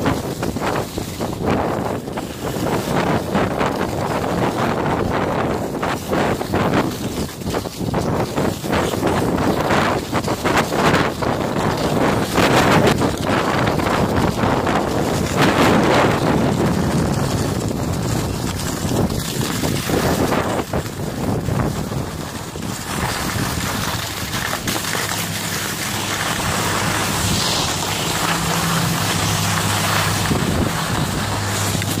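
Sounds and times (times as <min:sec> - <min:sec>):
skis sliding over snow: 0:00.0 - 0:32.0
wind buffeting microphone: 0:00.0 - 0:32.0
steady low hum: 0:24.3 - 0:32.0.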